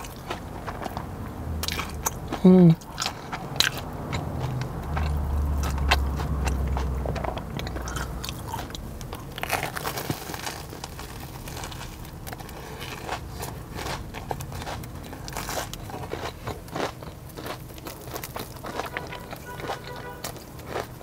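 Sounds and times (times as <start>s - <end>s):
low rumble: 0.0s - 16.6s
crunching and chewing: 0.0s - 21.0s.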